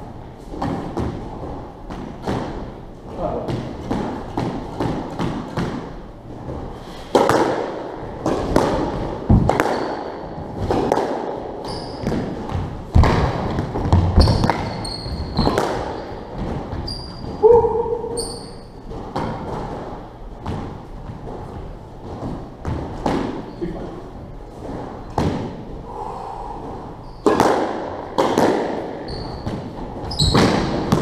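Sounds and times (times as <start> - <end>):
squash ball hitting rackets and walls: 0.0 - 25.8, 26.6 - 31.0
shoes squeaking on wooden floor: 11.6 - 12.8, 13.8 - 19.8, 29.0 - 31.0.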